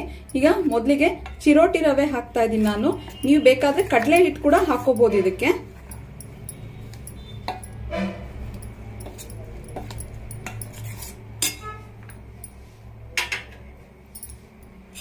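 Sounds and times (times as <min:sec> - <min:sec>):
ladle scraping metal bowl: 0:06.8 - 0:11.9.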